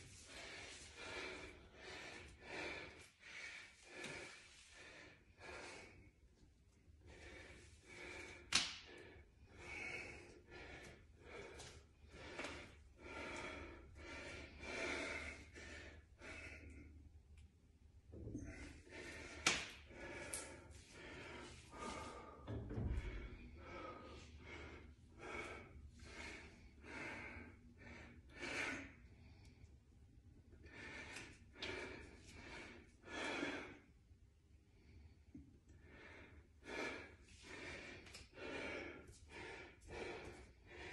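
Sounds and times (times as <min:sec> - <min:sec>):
man breathing hard: 0:00.0 - 0:17.2, 0:18.1 - 0:40.9.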